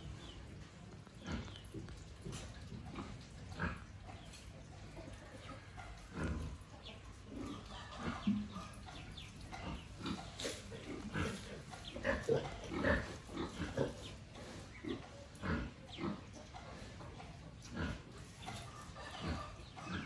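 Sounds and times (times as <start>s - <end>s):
pigs grunting: 1.1s - 4.7s, 5.5s - 20.0s.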